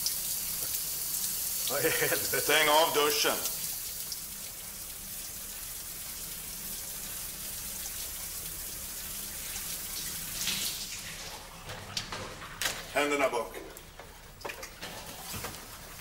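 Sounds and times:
shower water spray hissing: 0.0s - 4.2s.

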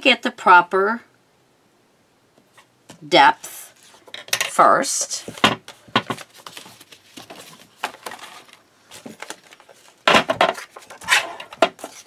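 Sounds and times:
paper rustling: 5.2s - 12.0s.

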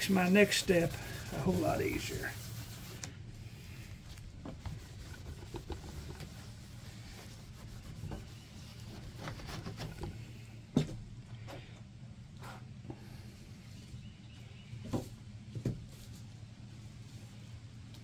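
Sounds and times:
rag rubbing on surface: 0.0s - 3.0s, 4.5s - 10.0s.

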